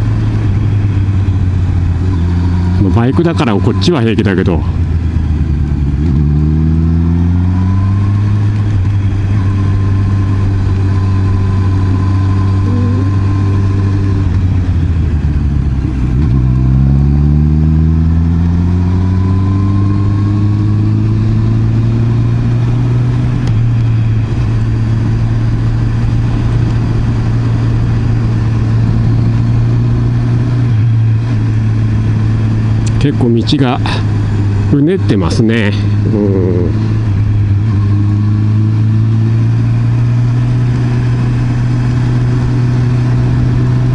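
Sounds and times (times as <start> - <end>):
road and wind noise: 0.0 - 43.9.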